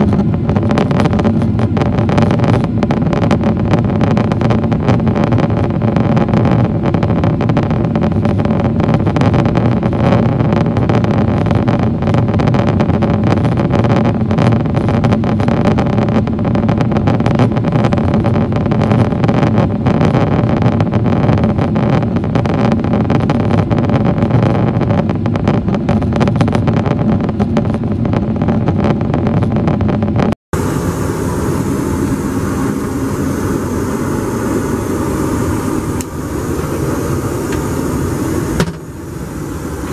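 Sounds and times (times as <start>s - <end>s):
airplane cabin roar: 0.0s - 39.9s
steady hum: 0.0s - 39.9s.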